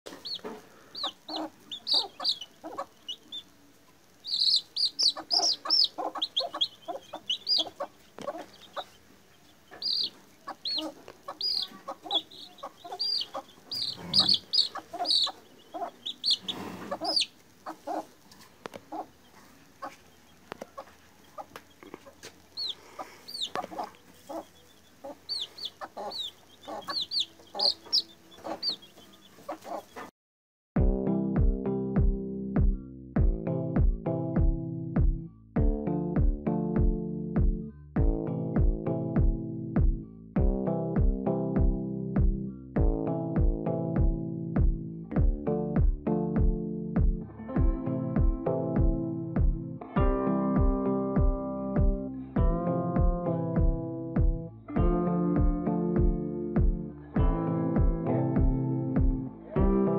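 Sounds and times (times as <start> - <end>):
chick peeping: 0.1 - 30.1.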